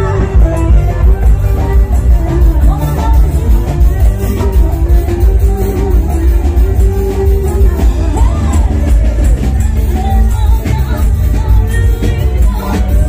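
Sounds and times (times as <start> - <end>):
loud bass-heavy music: 0.0 - 13.0.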